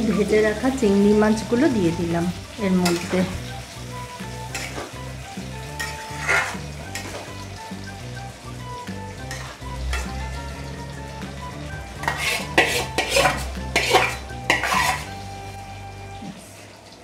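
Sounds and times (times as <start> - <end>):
curry simmering with light sizzle: 0.0 - 17.0
spatula scraping metal pan: 2.8 - 3.3, 4.5 - 5.0, 5.7 - 7.4, 9.2 - 10.2, 12.0 - 15.2.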